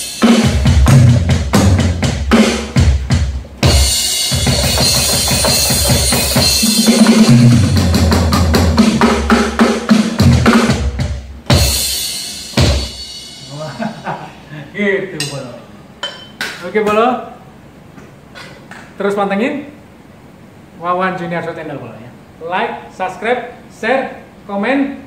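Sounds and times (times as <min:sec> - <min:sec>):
electronic drum hits: 0:00.0 - 0:14.3
cymbal wash: 0:11.5 - 0:14.3.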